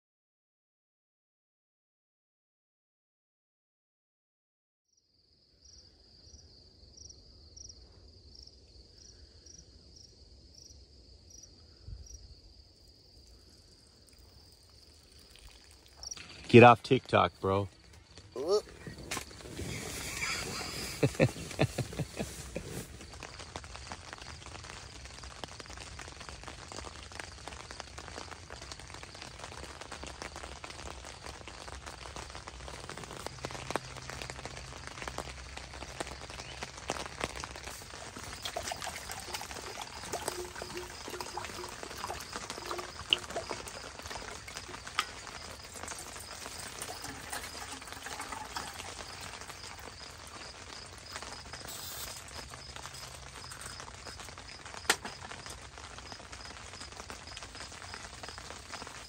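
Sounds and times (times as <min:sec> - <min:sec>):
light rain patter: 0:11.3 - 0:59.0
water pouring into metal cup: 0:13.3 - 0:23.2, 0:36.8 - 0:54.3.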